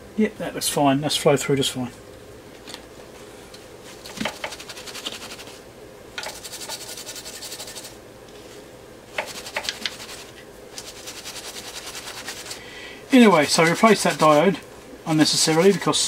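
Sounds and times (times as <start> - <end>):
faint steady hum: 0.0 - 16.0
tissue scrubbing circuit board: 4.2 - 5.6, 6.3 - 8.0, 9.2 - 16.0.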